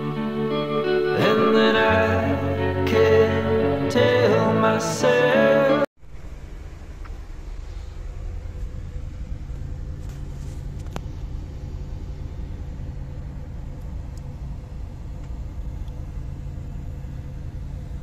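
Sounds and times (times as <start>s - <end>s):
constant machinery hum: 6.0s - 18.0s.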